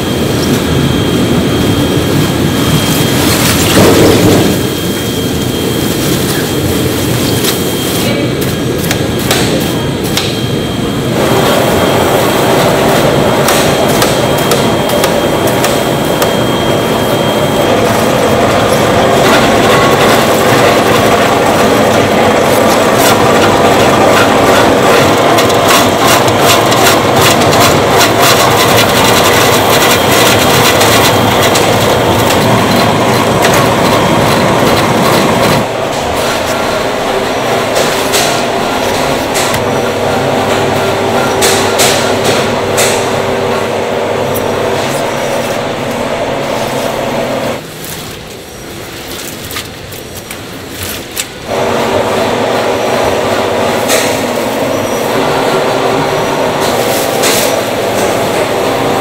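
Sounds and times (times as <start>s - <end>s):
vegetable cutting machine clattering: 11.2s - 16.5s, 17.6s - 45.7s, 49.2s - 59.0s.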